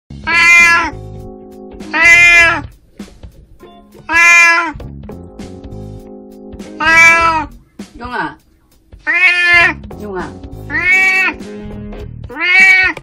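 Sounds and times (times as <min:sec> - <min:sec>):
background music: 0:00.1 - 0:13.0
cat meowing loudly: 0:00.2 - 0:01.0, 0:01.9 - 0:02.7, 0:04.1 - 0:04.8, 0:06.8 - 0:07.5, 0:09.0 - 0:09.8, 0:10.7 - 0:11.4, 0:12.3 - 0:13.0.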